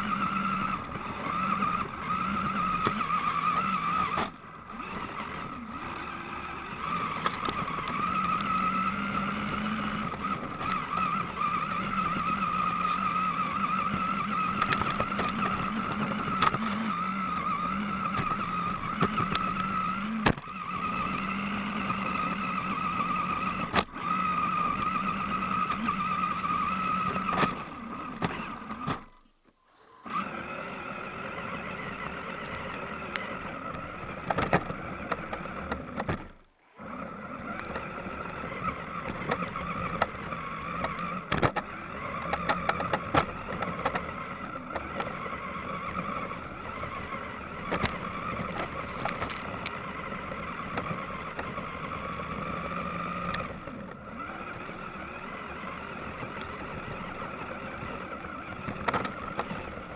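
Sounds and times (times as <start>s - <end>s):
rc car motor whining: 0.0s - 59.9s
clicks and knocks from bumps: 18.1s - 20.6s, 32.4s - 36.4s, 37.6s - 55.4s, 56.0s - 59.9s.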